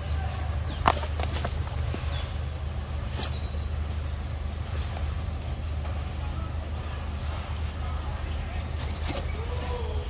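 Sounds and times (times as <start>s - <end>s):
insects buzzing: 0.0s - 10.0s.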